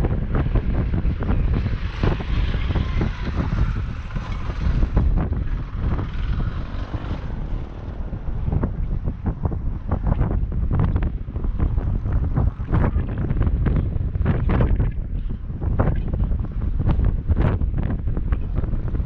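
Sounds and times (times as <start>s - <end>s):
motorcycle passing by: 0.0s - 13.8s
wind buffeting microphone: 0.0s - 19.0s.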